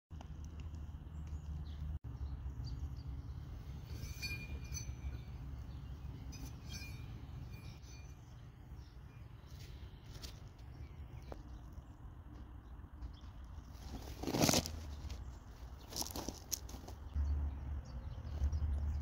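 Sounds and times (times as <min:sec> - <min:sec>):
light metallic clinks: 0:03.5 - 0:09.2.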